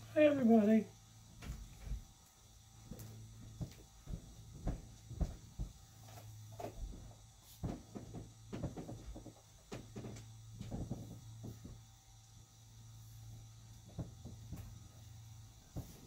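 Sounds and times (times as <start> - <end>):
low electrical hum: 0.0 - 16.0
knocks bumps and shuffling: 2.9 - 11.8.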